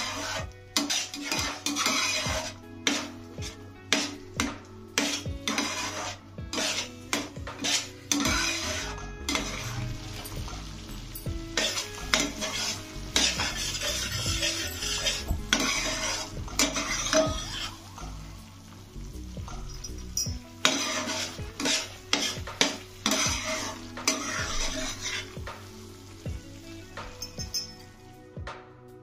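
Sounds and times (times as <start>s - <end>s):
spoon clinking and scraping metal: 0.0s - 4.2s, 5.0s - 17.8s, 19.5s - 25.4s, 27.1s - 28.0s
food sizzling in a pan: 0.0s - 28.4s.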